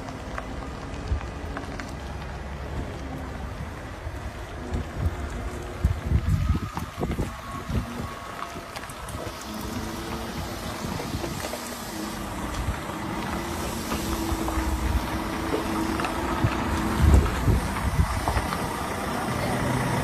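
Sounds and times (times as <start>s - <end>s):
diesel truck engine running: 0.0s - 20.0s
low rumble: 0.0s - 20.0s
wind on microphone: 3.5s - 19.0s.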